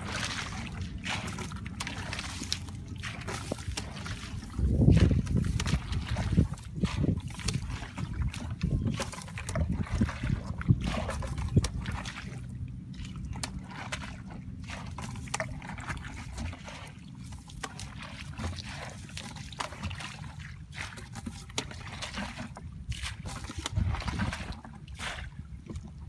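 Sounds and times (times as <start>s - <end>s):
low rumble: 0.0s - 17.3s
sloshing through muddy water: 0.0s - 26.0s.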